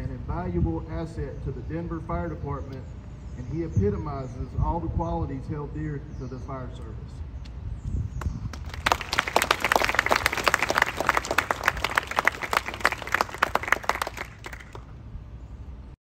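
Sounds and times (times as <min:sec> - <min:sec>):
audience applauding: 0:08.5 - 0:14.9.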